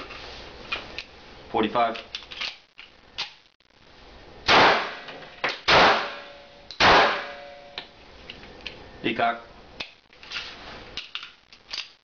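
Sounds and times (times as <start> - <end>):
gunshots: 4.5 - 7.5.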